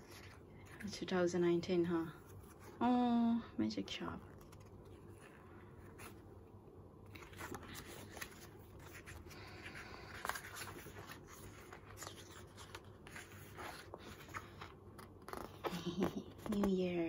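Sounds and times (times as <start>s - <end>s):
pages flicking and scraping: 7.0s - 17.0s
paper rustling: 7.0s - 17.0s.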